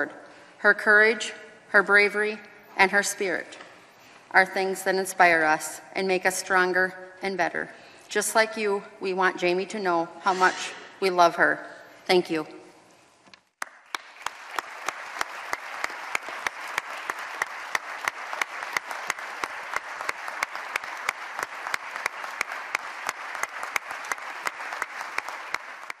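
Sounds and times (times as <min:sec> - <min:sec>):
crowd applauding: 0:13.6 - 0:26.0.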